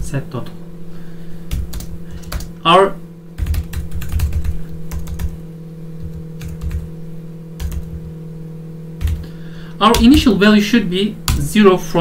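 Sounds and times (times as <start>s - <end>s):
computer keyboard typing: 1.5s - 2.5s, 3.4s - 5.4s, 6.0s - 6.9s, 7.6s - 8.1s, 9.0s - 9.3s, 9.9s - 10.3s.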